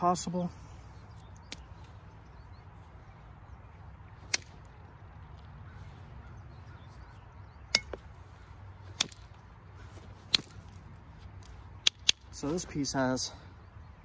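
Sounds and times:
flint knapping clicks: 1.2s - 2.0s, 8.9s - 9.4s, 10.3s - 12.4s.

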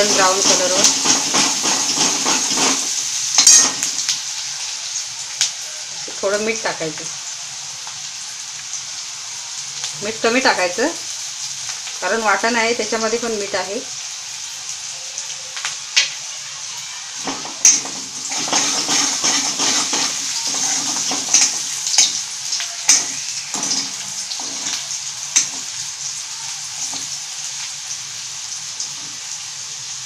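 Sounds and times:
spatula scraping steel pan: 0.0s - 4.0s, 17.2s - 22.2s, 22.8s - 25.7s
onion sizzling in hot oil: 0.0s - 30.0s.

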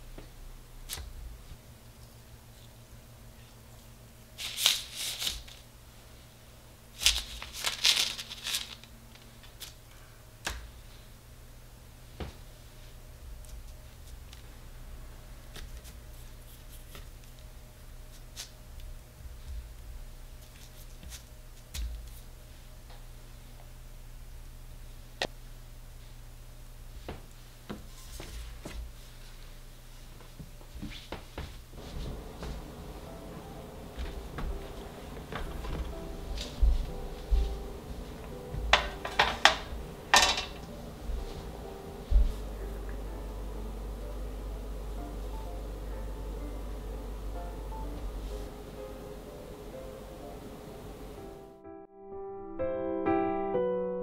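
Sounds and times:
steady low hum: 0.0s - 51.6s
paper rustle: 4.4s - 5.7s, 7.0s - 9.8s.

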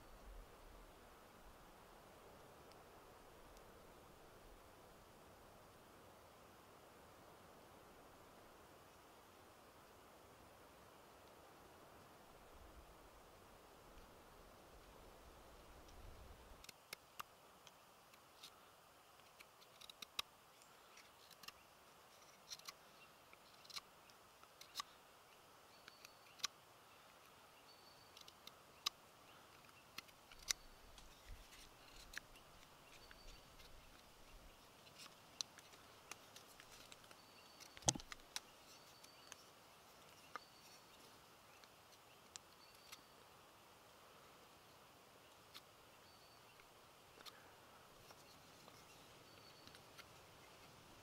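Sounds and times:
wood snapping: 37.7s - 38.4s.

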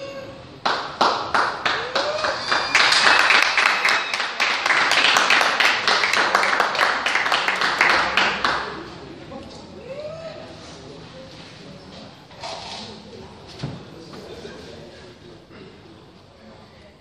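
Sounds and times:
crowd clapping: 0.6s - 9.0s.

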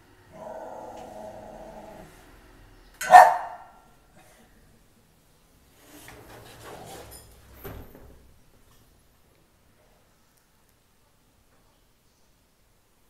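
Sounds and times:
sliding door rubbing on track: 5.7s - 7.6s.

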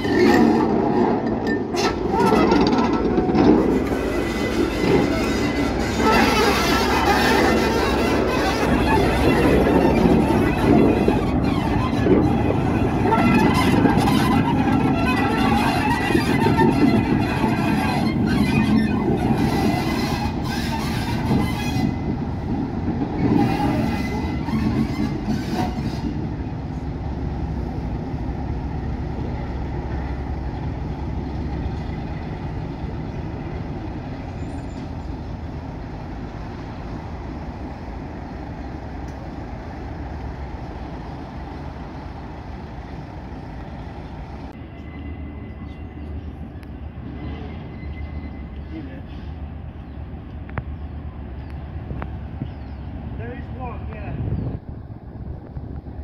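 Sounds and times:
diesel locomotive engine running: 0.0s - 56.0s.

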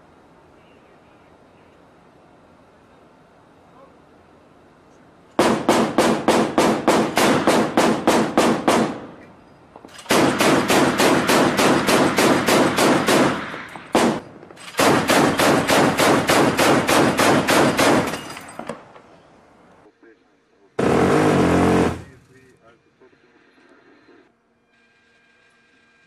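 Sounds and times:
machine gun automatic fire: 5.4s - 9.0s, 9.9s - 18.2s.

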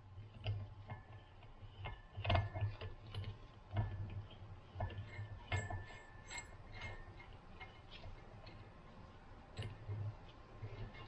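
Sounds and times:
metallic ring or scrape: 5.1s - 7.2s
light metallic clicks and taps: 9.5s - 11.0s.

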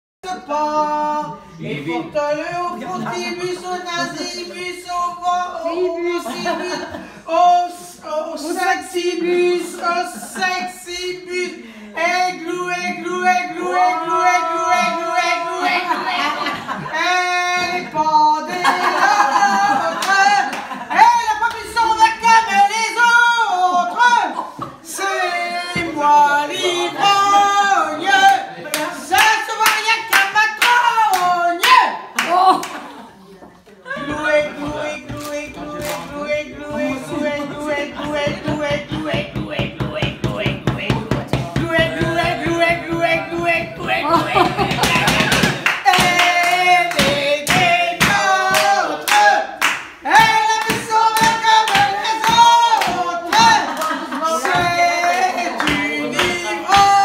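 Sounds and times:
group singing a chant: 0.2s - 32.1s, 33.8s - 57.0s
steady handclaps: 28.7s - 32.8s, 34.6s - 37.0s, 37.9s - 57.0s.

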